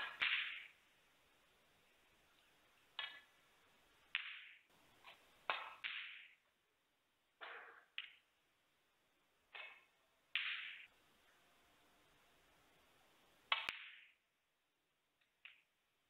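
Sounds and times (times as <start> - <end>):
snooker balls clicking: 13.5 - 14.2.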